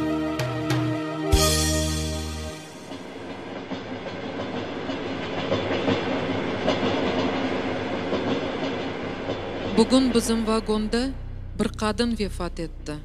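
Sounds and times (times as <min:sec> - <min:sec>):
railway wagon rumbling on track: 0:02.2 - 0:12.9.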